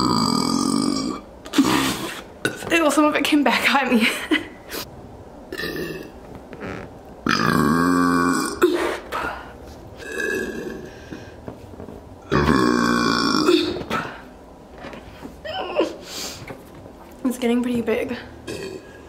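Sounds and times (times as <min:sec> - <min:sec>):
woman burping into balloon: 0:00.0 - 0:02.7, 0:05.5 - 0:06.2, 0:07.2 - 0:09.0, 0:10.0 - 0:10.9, 0:12.2 - 0:14.2, 0:18.4 - 0:19.0.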